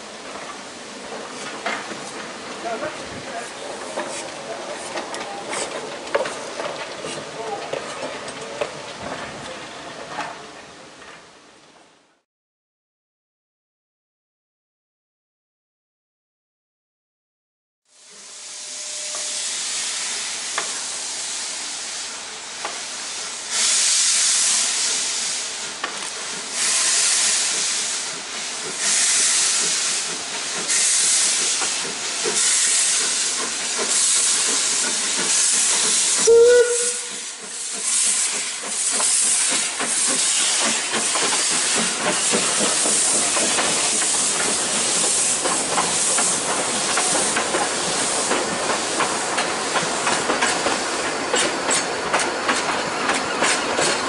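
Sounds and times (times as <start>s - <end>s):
steam whistle: 18.0s - 19.8s, 36.2s - 37.3s
steam locomotive exhaust beats: 18.0s - 54.0s.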